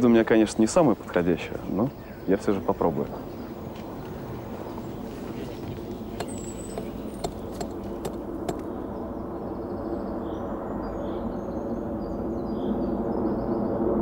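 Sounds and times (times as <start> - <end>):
hammer striking rock: 6.0 - 8.7.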